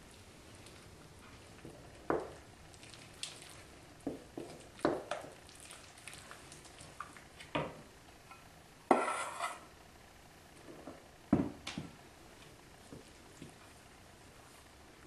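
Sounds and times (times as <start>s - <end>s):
wooden spoon stirring dough: 0.0s - 7.8s, 8.9s - 9.6s, 12.3s - 14.8s
measuring cup scraping metal bowl: 8.9s - 9.7s.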